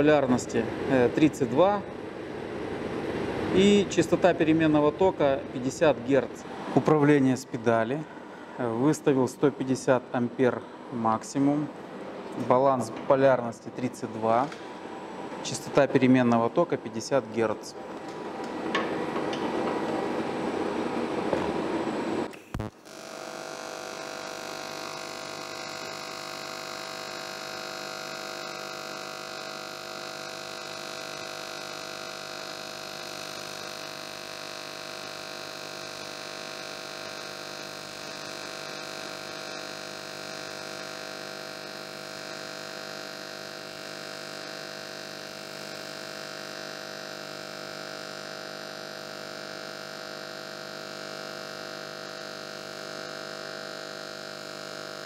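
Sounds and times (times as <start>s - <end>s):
welding arc buzzing: 17.4s - 55.0s.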